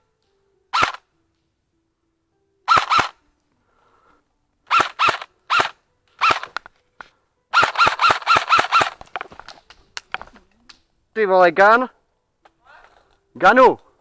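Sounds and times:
airsoft gun shots: 0.7 - 1.0, 2.7 - 3.2, 4.7 - 6.6, 7.5 - 9.1.

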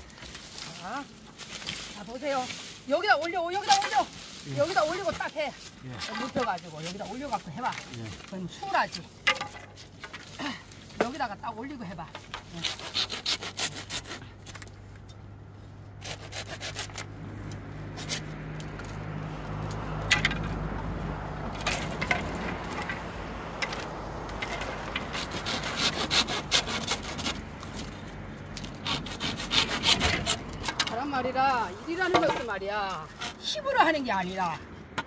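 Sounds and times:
hand saw cutting bamboo: 0.1 - 14.7, 16.0 - 19.0, 23.6 - 28.0, 28.6 - 34.4.

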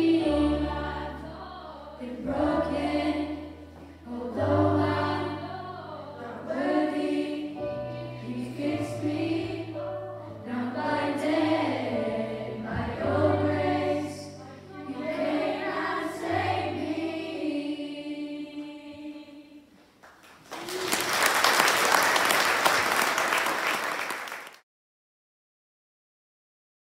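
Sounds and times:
choir singing: 0.0 - 19.7
audience applause: 20.2 - 24.6.

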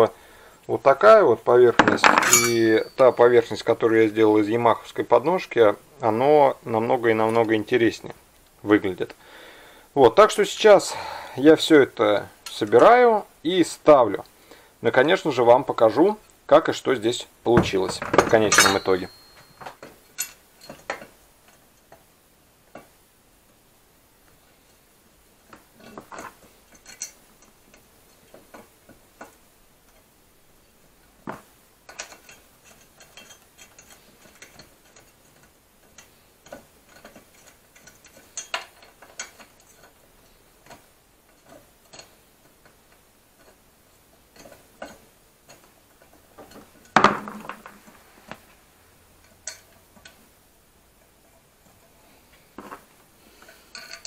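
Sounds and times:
metal tools clinking and knocking: 1.7 - 3.7, 17.5 - 21.6, 25.8 - 29.3, 31.9 - 42.7, 44.2 - 48.5, 49.2 - 50.2, 51.0 - 54.0
loud metal clank: 1.8 - 3.2.

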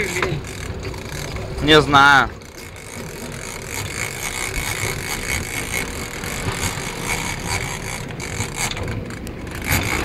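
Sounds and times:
boat engine running: 0.0 - 10.0
water wash: 0.0 - 10.0.

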